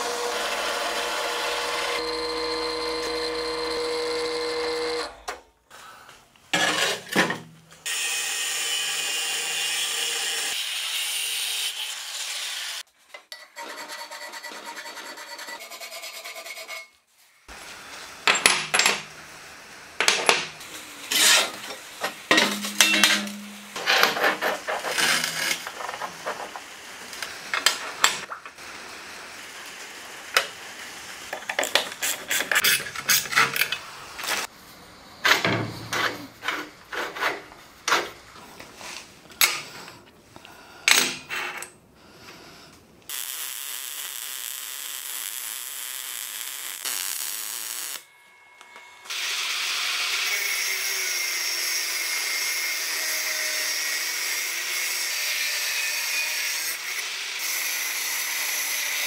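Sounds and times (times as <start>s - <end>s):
file rasping on steel: 13.6s - 17.0s, 21.0s - 21.7s.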